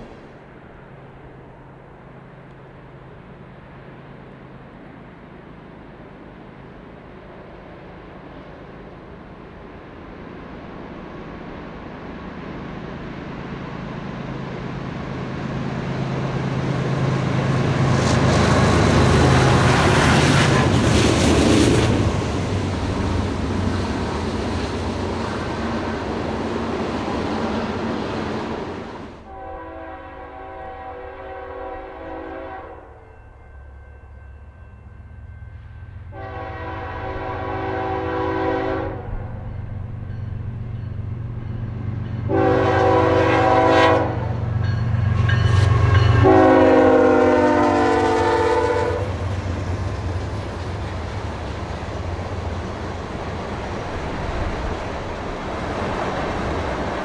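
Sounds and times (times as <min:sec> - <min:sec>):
low locomotive rumble: 0:00.0 - 0:57.0
locomotive air horn blasts: 0:29.2 - 0:33.1, 0:36.1 - 0:39.3, 0:42.3 - 0:44.4, 0:45.6 - 0:49.2.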